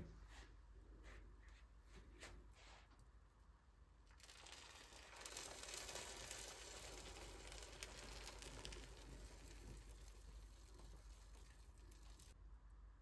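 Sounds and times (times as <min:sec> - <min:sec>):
syrup crackling on pastry: 0:04.0 - 0:12.4.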